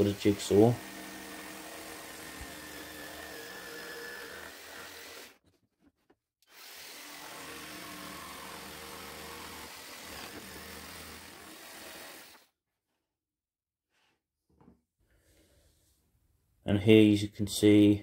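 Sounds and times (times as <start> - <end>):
jigsaw cutting plywood: 0.0 - 5.4, 6.4 - 12.5.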